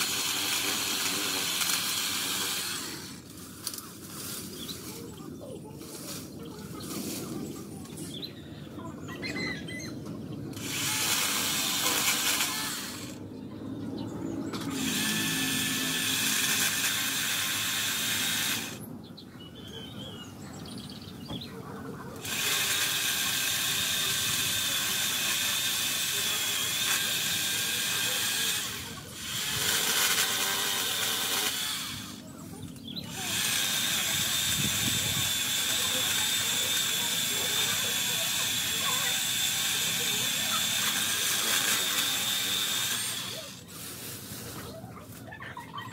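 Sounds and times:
electric chainsaw cutting branches: 0.0s - 5.0s, 10.5s - 13.2s, 14.4s - 18.9s, 22.1s - 44.6s.

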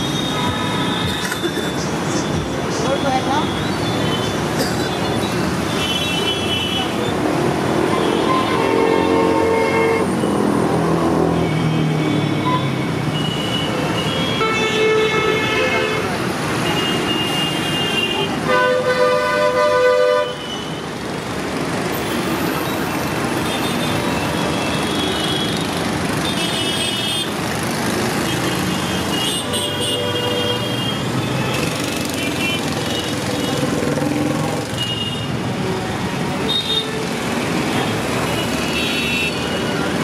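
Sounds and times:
road traffic: 0.0s - 40.0s
vehicle horns honking: 7.9s - 10.4s, 11.4s - 20.8s, 23.4s - 27.4s, 28.3s - 33.8s, 34.6s - 35.4s, 36.4s - 40.0s.

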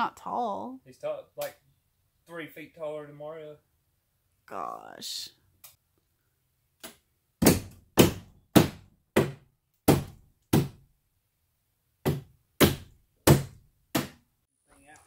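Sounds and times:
hammer striking wood: 6.8s - 10.9s, 12.0s - 14.2s.

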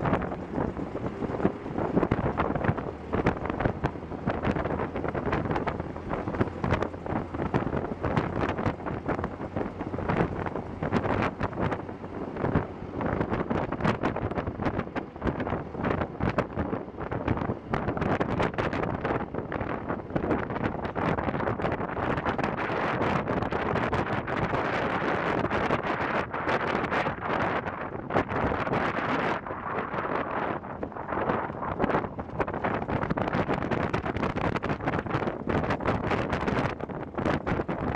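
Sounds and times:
car engine running: 0.0s - 19.0s, 29.6s - 37.9s
wind buffeting microphone: 0.0s - 37.9s.

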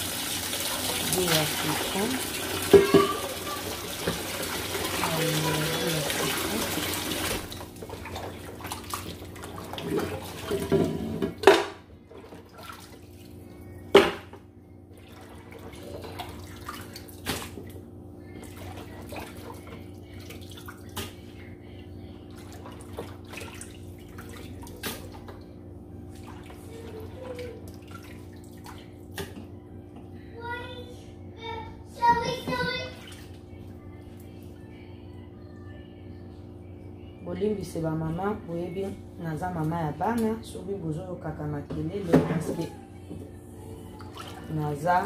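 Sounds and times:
steady low hum: 11.2s - 45.0s.

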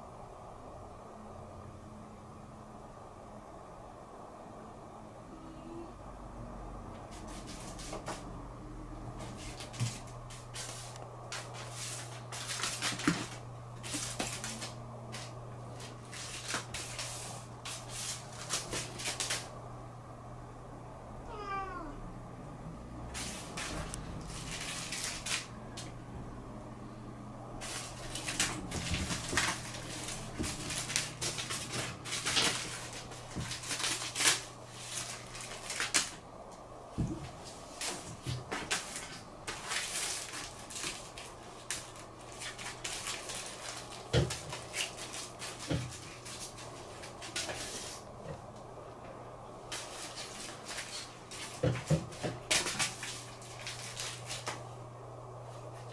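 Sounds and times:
plastic wrapper crinkling on wooden floor: 9.4s - 19.5s, 23.2s - 25.5s, 27.6s - 36.2s, 37.8s - 48.1s, 49.7s - 54.6s.

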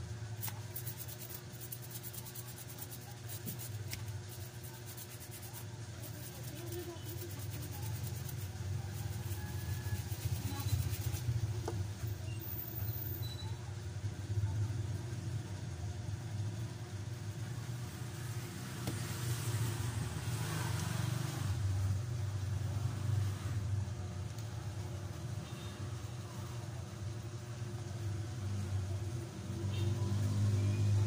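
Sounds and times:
small brush scrubbing: 0.3s - 11.6s.

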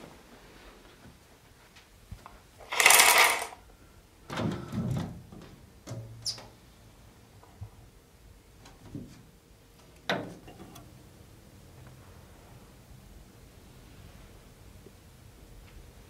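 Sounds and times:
curtain rustling: 2.6s - 3.6s.

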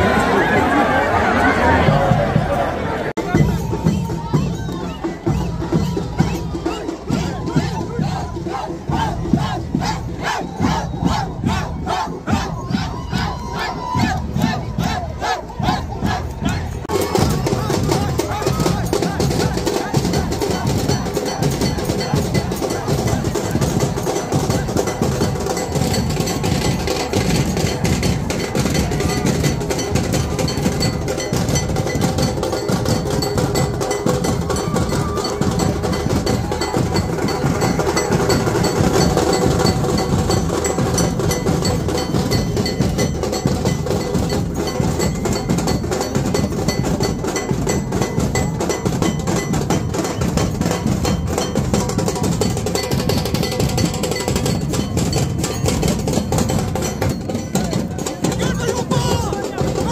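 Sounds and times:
crowd shouting and cheering: 0.0s - 59.9s
clanging metal percussion: 3.2s - 59.9s
dhol drums beating: 3.2s - 59.9s.

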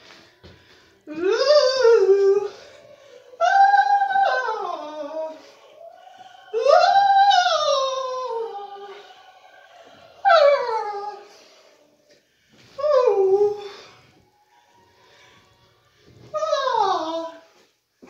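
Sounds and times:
dog howling: 1.1s - 11.9s, 16.3s - 17.5s.

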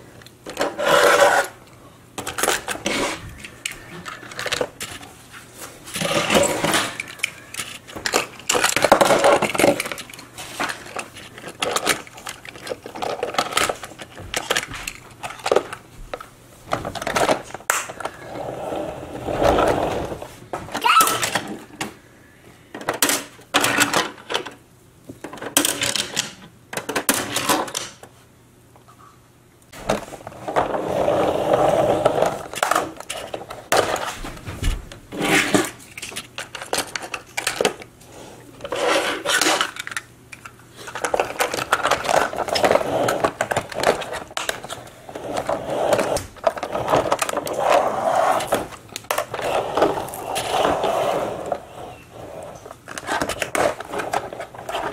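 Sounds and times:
toy wheels rolling on tabletop: 0.5s - 1.6s, 2.3s - 5.0s, 16.8s - 20.3s, 30.3s - 34.1s, 38.6s - 40.0s, 40.9s - 54.9s.

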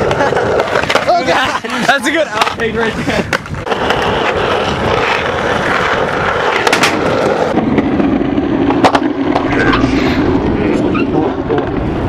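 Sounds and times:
skateboard clacks: 0.0s - 9.5s
skateboard wheels rolling on concrete: 0.0s - 9.6s.

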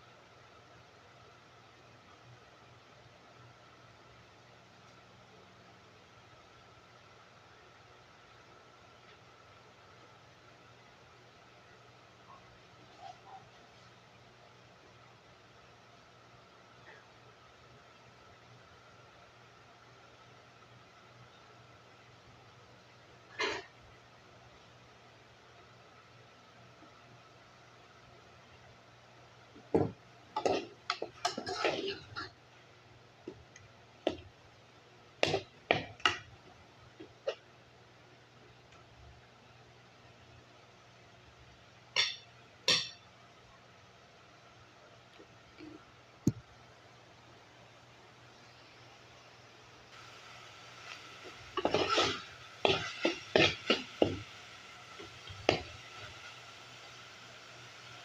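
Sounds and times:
spoon scraping metal pot: 30.4s - 32.3s, 51.6s - 54.2s.

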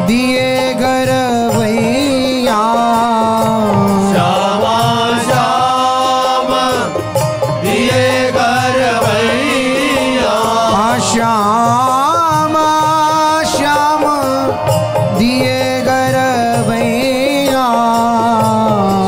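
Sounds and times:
devotional melody: 0.0s - 19.0s.

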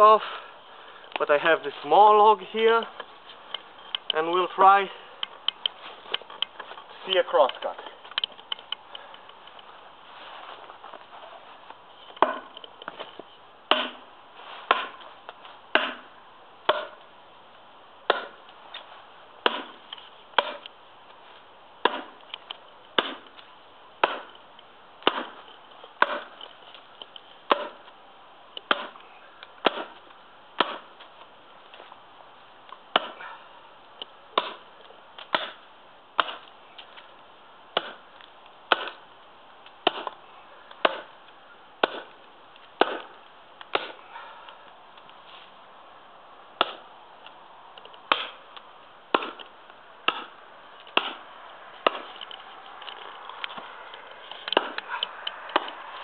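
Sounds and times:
axe chopping a log: 12.2s - 12.6s, 13.7s - 15.0s, 15.7s - 17.0s, 18.0s - 18.5s, 19.4s - 20.7s, 21.8s - 22.2s, 23.0s - 23.4s, 24.0s - 24.4s, 25.0s - 26.4s, 27.5s - 27.9s, 28.6s - 29.0s, 29.6s - 31.0s, 32.9s - 33.3s, 34.3s - 35.6s, 36.2s - 37.0s, 37.7s - 39.0s, 39.8s - 41.2s, 41.8s - 42.2s, 42.8s - 44.0s, 46.6s - 46.9s, 48.0s - 48.4s, 49.1s - 52.2s, 54.4s - 56.0s.

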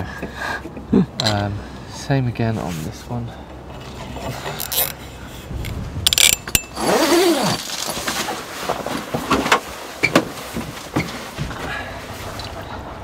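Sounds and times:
creak rising and falling: 3.7s - 5.0s, 5.6s - 8.2s
cable tie zipping: 4.6s - 5.0s, 6.2s - 8.0s.

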